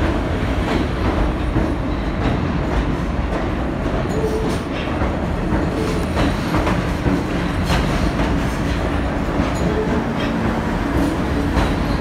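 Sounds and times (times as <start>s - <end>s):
subway train wheels rumbling: 0.0s - 12.0s.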